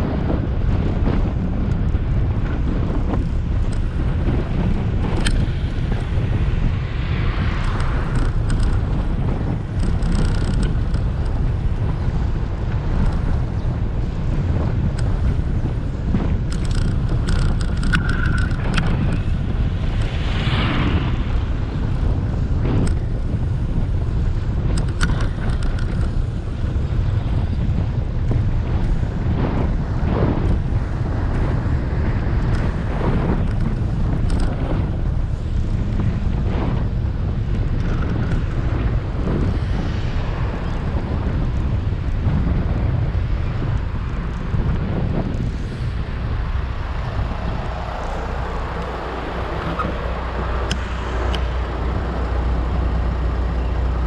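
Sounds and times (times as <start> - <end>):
wind buffeting microphone: 0.0 - 54.0
clicks and rattles: 9.7 - 11.4, 16.5 - 19.4, 24.7 - 26.2.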